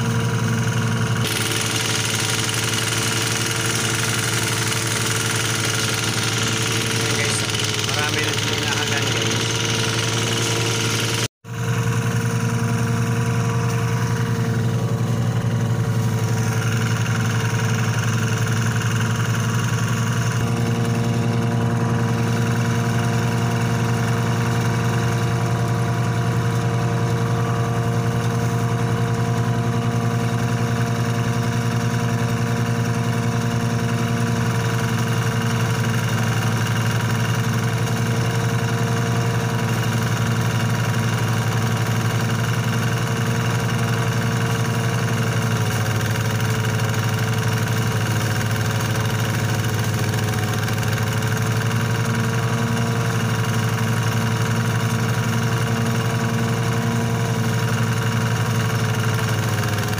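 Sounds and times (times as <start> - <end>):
thresher engine running: 0.0 - 59.9.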